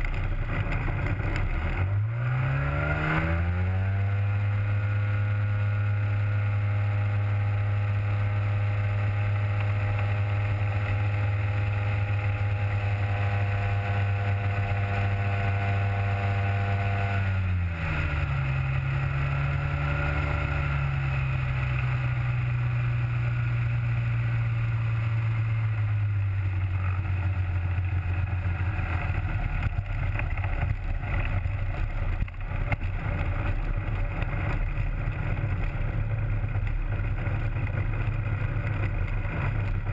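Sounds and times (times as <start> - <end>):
engine knocks and rattles: 0.0 - 2.6, 21.4 - 39.9
ultralight aircraft engine running: 0.0 - 39.9.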